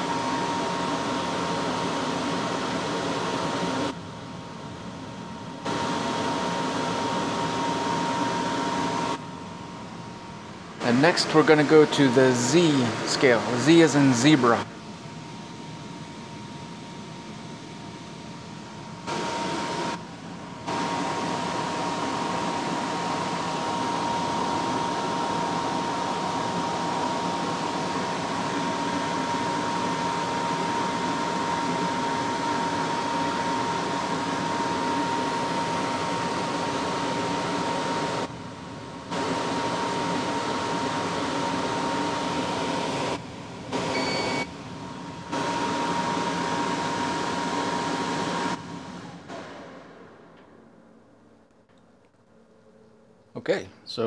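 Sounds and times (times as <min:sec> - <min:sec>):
dehumidifier blower whining: 0:00.0 - 0:54.0
short high beep: 0:43.9 - 0:44.5.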